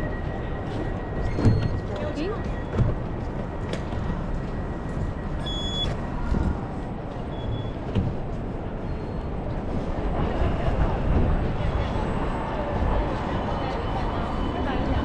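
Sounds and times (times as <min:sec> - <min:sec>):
city street rumble: 0:00.0 - 0:15.0
wind buffeting microphone: 0:06.0 - 0:15.0.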